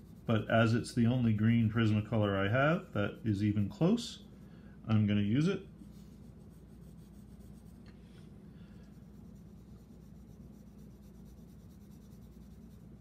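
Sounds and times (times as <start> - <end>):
colored pencil scratching on paper: 0.0 - 1.0, 5.8 - 7.8, 8.9 - 13.0
low steady hum: 0.0 - 13.0.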